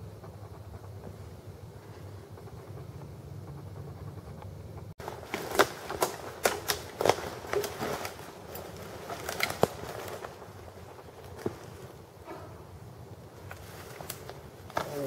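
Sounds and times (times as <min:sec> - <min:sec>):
steady low rumble: 0:00.0 - 0:05.3
twig snaps: 0:05.4 - 0:08.6.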